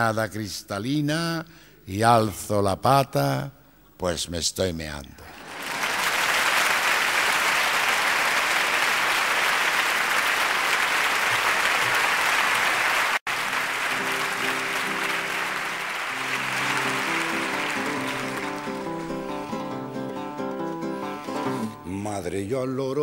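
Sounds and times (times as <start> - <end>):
audience applauding: 5.3 - 21.7
acoustic guitar picking notes: 13.4 - 22.0.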